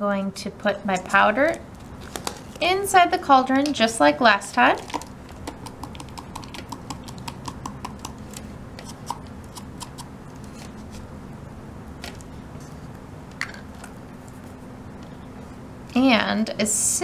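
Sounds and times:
low background hum: 0:00.0 - 0:17.0
powder ticking into plastic: 0:04.7 - 0:08.5.

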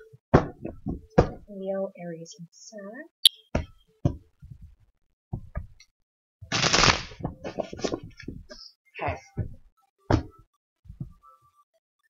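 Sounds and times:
cards shuffling: 0:06.6 - 0:08.0.

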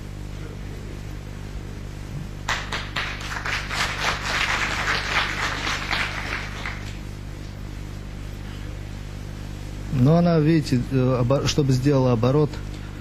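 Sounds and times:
audience applauding: 0:02.4 - 0:07.1.

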